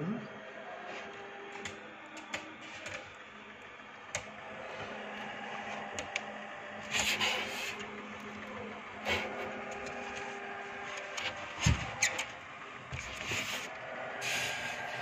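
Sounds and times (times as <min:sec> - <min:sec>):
small electric fan humming: 0:00.0 - 0:15.0
scraping and rubbing: 0:13.0 - 0:15.0.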